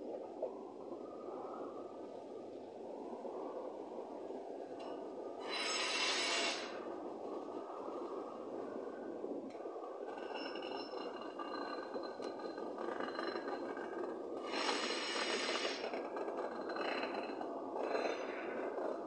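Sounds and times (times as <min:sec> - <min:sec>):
wheel flanges screeching on rail: 0:05.4 - 0:06.8, 0:10.1 - 0:18.4
wheel squeal: 0:05.4 - 0:06.8, 0:14.4 - 0:16.0
train wheels rumbling on rail: 0:10.0 - 0:19.0.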